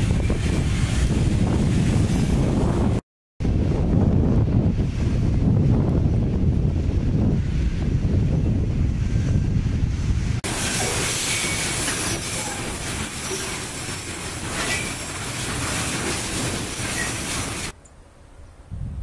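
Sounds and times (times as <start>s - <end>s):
wind buffeting microphone: 0.0s - 11.0s, 18.5s - 19.0s
freight train rolling past: 0.0s - 17.8s
wheel squeal: 10.8s - 17.7s.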